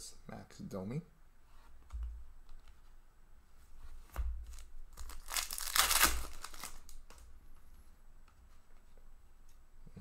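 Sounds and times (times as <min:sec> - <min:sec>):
foil card pack crinkling: 0:04.5 - 0:07.2.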